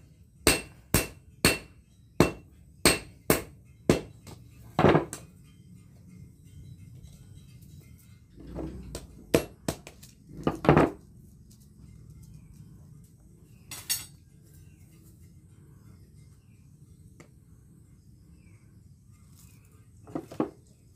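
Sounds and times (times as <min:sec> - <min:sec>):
metal tongs clanking on anvil: 0:13.7 - 0:14.2.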